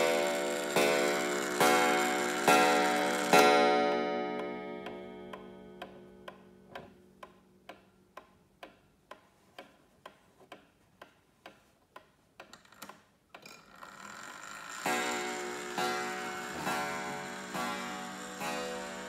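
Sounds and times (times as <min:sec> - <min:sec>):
clock ticking: 0:00.0 - 0:12.7, 0:14.8 - 0:19.0
coil gong ringing: 0:14.9 - 0:19.0.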